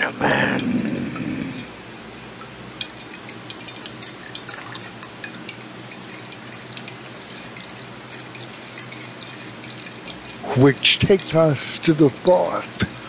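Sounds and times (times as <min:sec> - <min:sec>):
faint low hum: 0:00.0 - 0:03.0
liquid dripping into a cup: 0:00.2 - 0:11.0.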